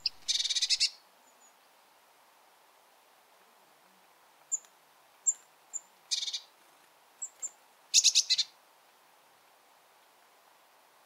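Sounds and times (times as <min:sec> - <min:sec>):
birds calling: 0:00.0 - 0:01.0.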